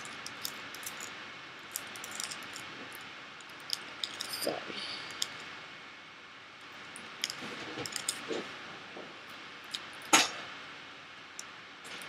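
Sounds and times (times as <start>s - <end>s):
aluminium foil crinkling: 0.0s - 5.4s, 6.8s - 8.4s.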